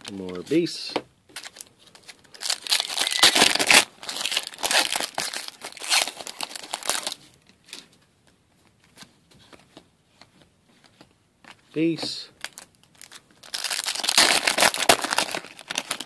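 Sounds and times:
foil pack tearing and crinkling: 0:02.2 - 0:07.2, 0:12.5 - 0:16.0.

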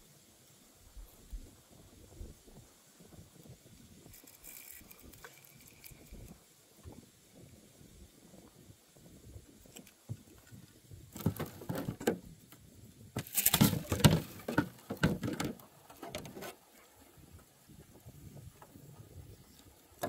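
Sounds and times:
fishing gear knocking and rattling: 0:04.0 - 0:06.4, 0:09.6 - 0:12.3, 0:13.2 - 0:16.6.

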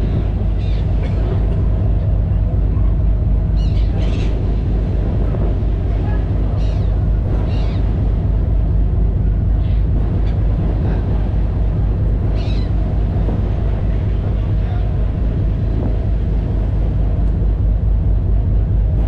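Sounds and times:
ferry engine rumbling: 0:00.0 - 0:19.0
gull calls: 0:06.5 - 0:08.0, 0:12.3 - 0:12.8.

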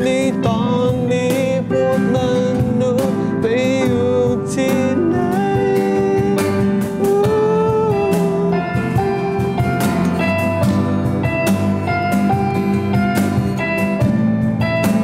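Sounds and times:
cajon: 0:00.0 - 0:15.0
keyboard: 0:00.0 - 0:15.0
strummed acoustic guitar: 0:00.0 - 0:15.0.

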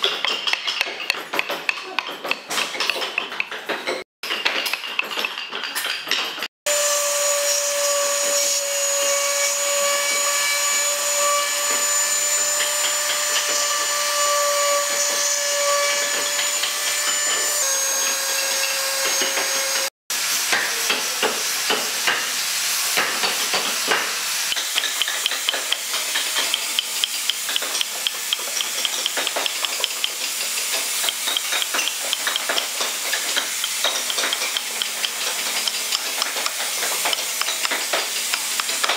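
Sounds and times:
rotary tool grinding wood: 0:23.4 - 0:38.9
carving gouge scraping wood: 0:24.5 - 0:38.9.

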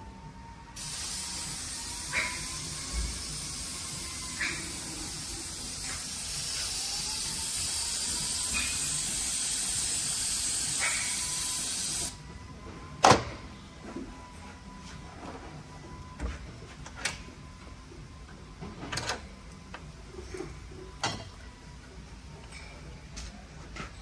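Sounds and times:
aerosol spray hissing: 0:00.8 - 0:12.2.

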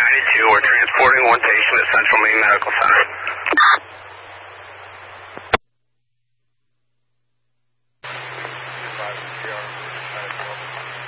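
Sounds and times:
radio static hiss with hum: 0:00.0 - 0:05.6, 0:08.0 - 0:11.0
radio squelch click: 0:00.6 - 0:03.8.

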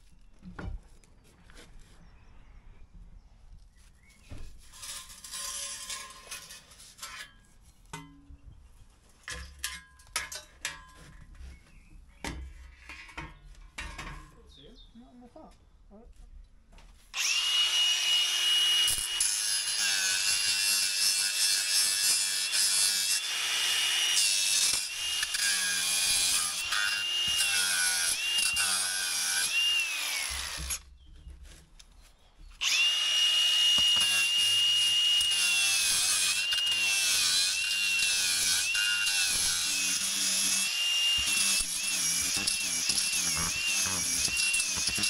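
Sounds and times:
angle grinder cutting: 0:17.2 - 0:30.8, 0:32.6 - 0:45.0.

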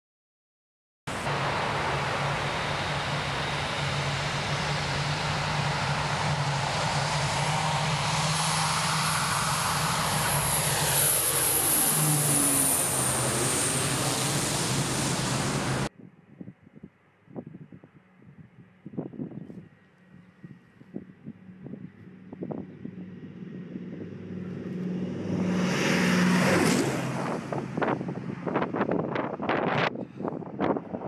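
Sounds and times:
rushing noise: 0:01.1 - 0:15.9
turbine whine: 0:01.1 - 0:15.9
propeller aircraft drone: 0:01.1 - 0:31.0.

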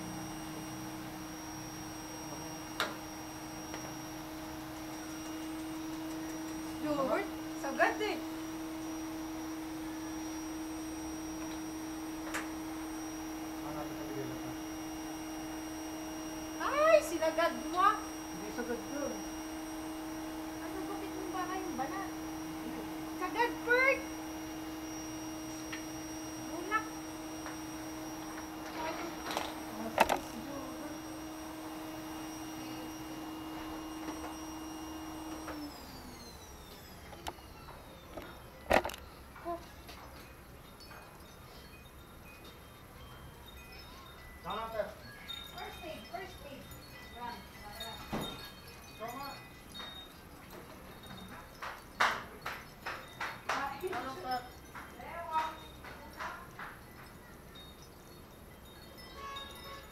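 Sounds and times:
steady hum: 0:00.0 - 0:39.3.

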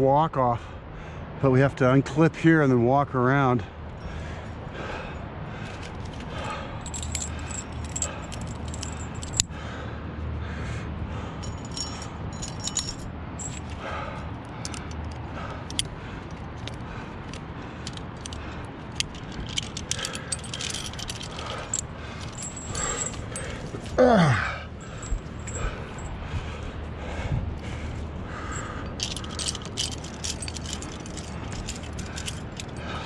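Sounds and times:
carabiners clinking: 0:05.6 - 0:09.5, 0:11.2 - 0:26.2, 0:27.6 - 0:33.0.

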